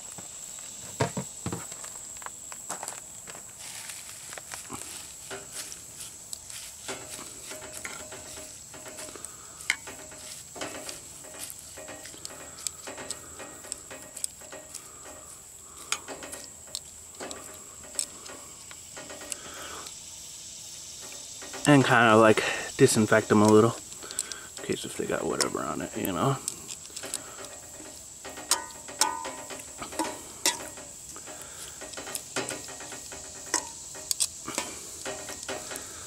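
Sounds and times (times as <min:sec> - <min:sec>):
metal clinking against pot: 0:27.0 - 0:35.9.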